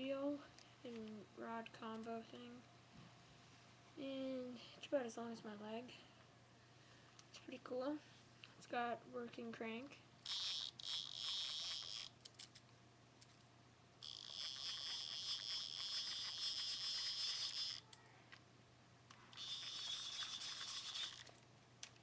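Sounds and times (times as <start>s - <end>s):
fishing reel ticking whir: 10.2s - 12.2s, 14.0s - 17.9s, 19.3s - 21.4s.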